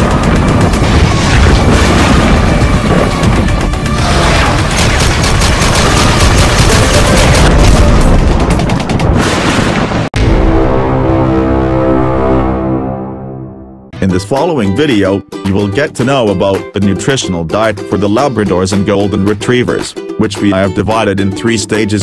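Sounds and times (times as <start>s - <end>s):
machine-gun sound effects: 0.0s - 9.2s
action-style music with booming hits: 0.0s - 13.6s.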